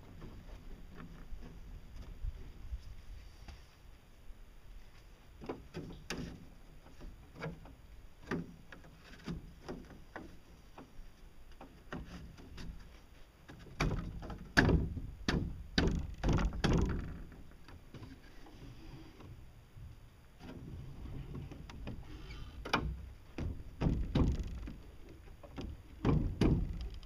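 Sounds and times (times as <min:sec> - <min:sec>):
stiff panels knocking and scraping: 0:05.4 - 0:19.4, 0:20.4 - 0:27.0.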